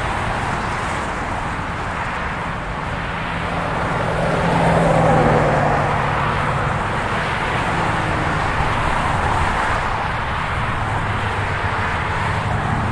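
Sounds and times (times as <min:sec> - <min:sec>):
tyres rushing on road: 0:00.0 - 0:12.9.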